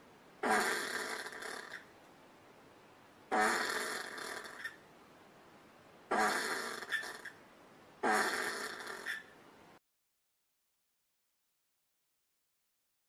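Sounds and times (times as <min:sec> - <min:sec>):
possum rough calls: 0:00.4 - 0:01.9, 0:03.3 - 0:04.8, 0:06.1 - 0:07.4, 0:08.0 - 0:09.4.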